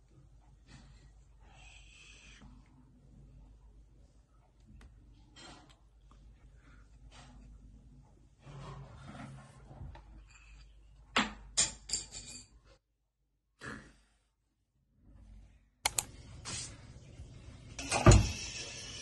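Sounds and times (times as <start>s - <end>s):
kitchen clatter: 10.1s - 12.7s, 17.8s - 18.6s.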